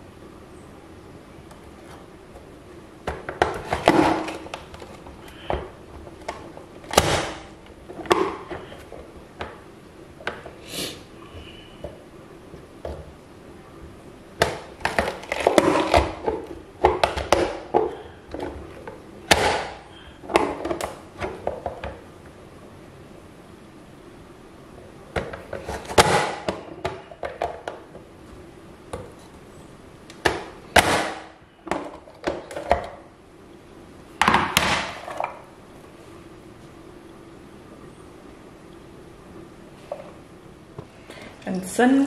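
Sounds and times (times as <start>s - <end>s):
plastic lid clacking: 14.4s - 18.6s.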